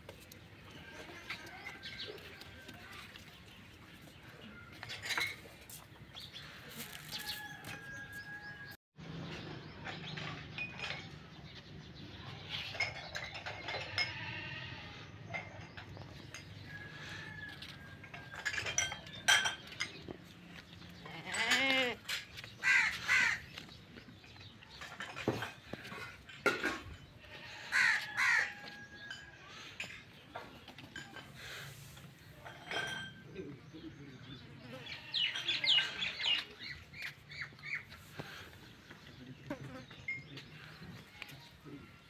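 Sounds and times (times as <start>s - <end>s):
goat bleating: 21.0s - 22.1s
crows cawing: 22.6s - 23.4s, 27.6s - 28.7s.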